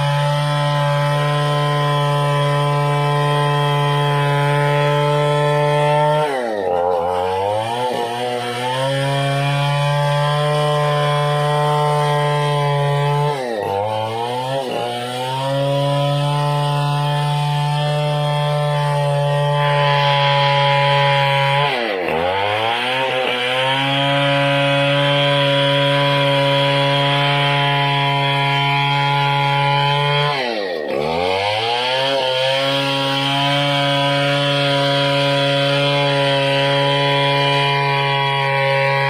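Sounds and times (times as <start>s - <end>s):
chainsaw cutting through log: 0.0s - 39.0s.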